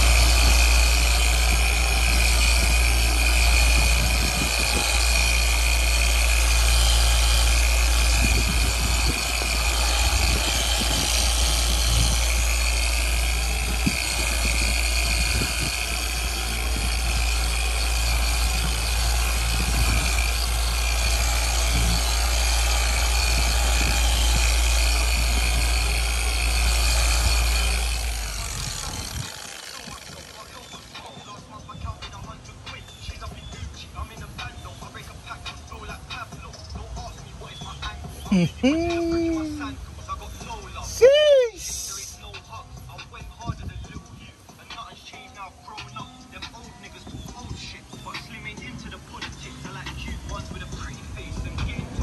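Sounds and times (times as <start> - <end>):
polisher humming with a whine: 0.0 - 31.2.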